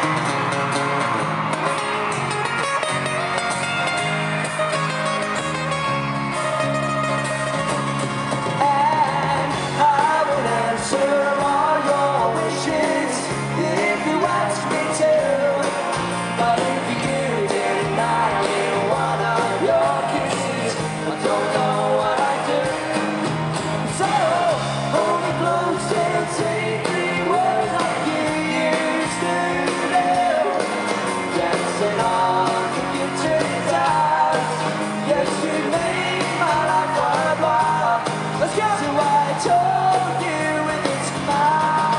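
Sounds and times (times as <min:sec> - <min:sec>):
acoustic guitar strumming: 0:00.0 - 0:41.9
crowd yelling: 0:00.0 - 0:41.9
live pop-rock band: 0:00.0 - 0:41.9
person singing: 0:08.6 - 0:23.2, 0:23.9 - 0:41.9.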